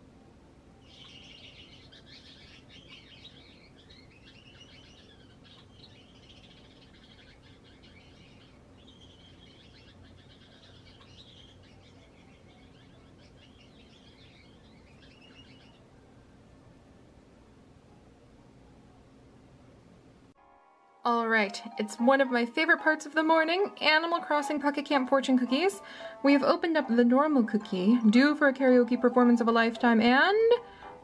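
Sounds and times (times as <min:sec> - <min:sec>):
finches chirping: 0:00.8 - 0:15.9.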